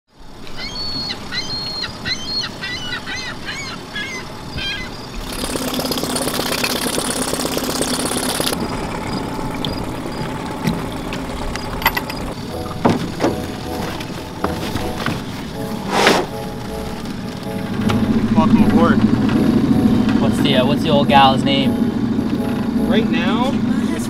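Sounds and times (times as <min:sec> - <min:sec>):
small birds chirping: 0:00.5 - 0:05.3
outboard motor idling: 0:05.2 - 0:24.0
water stream splashing: 0:05.2 - 0:24.0.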